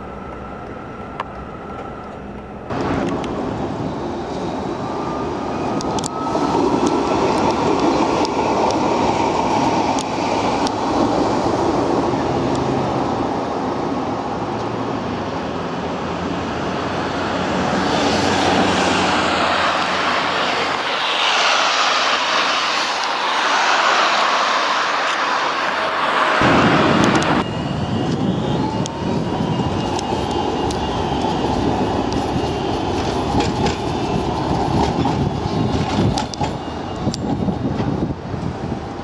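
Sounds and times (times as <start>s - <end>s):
road traffic: 0.0s - 39.0s
tram motor whine: 0.0s - 39.0s
tram wheels clicking over rail joints: 5.8s - 13.1s, 29.6s - 38.6s
whooshing sweep: 17.5s - 30.6s
wind rumble on microphone: 26.4s - 39.0s.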